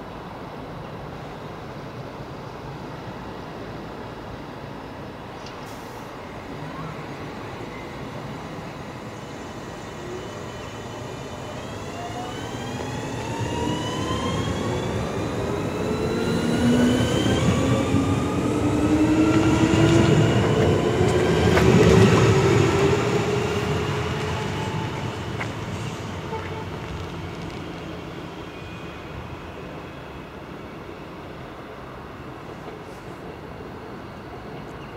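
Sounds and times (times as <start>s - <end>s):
wheels rumbling on rails: 10.6s - 29.8s.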